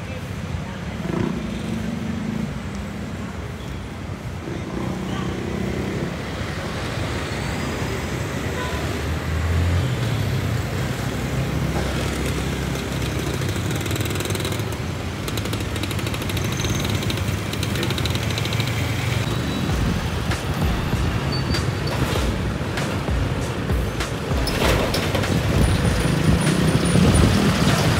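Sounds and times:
road noise: 0.0s - 27.9s
rattling: 11.9s - 19.2s.

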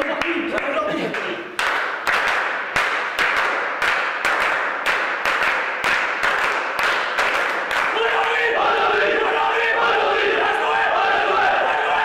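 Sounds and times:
group clapping in unison: 0.0s - 9.2s.

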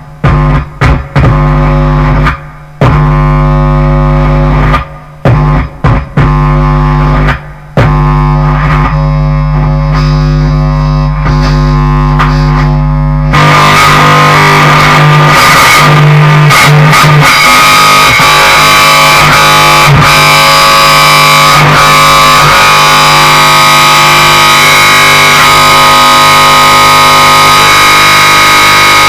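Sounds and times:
distorted bass guitar drone: 0.0s - 29.0s.

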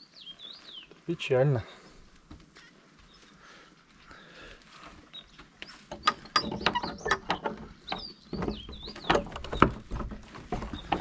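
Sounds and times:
door and padlock rattling: 5.9s - 10.2s.

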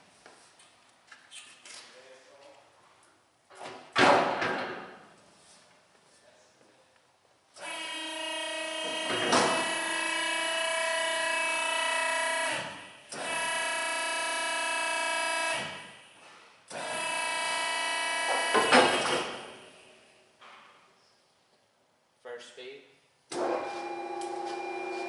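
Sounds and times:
mixer motor whining: 7.6s - 15.8s, 16.7s - 19.0s, 23.4s - 25.0s.

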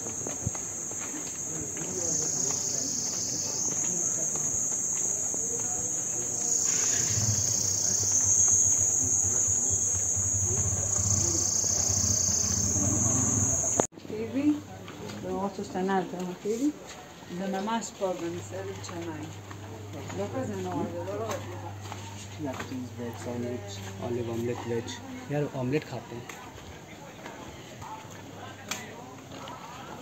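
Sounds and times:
shrill insect chorus: 0.0s - 13.9s.

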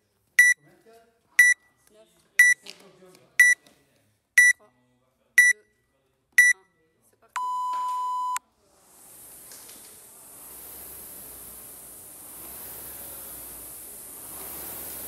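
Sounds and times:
short high beeps: 1.4s - 1.6s, 4.4s - 4.6s, 5.4s - 5.6s, 6.4s - 6.6s, 7.4s - 8.4s
long lower beep: 7.4s - 8.4s
rowing machine flywheel whooshing: 8.6s - 15.0s.

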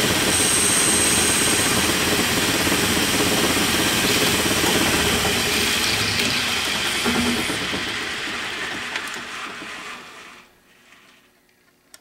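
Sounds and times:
lathe humming: 0.0s - 10.5s
thin high whine: 0.1s - 7.8s.

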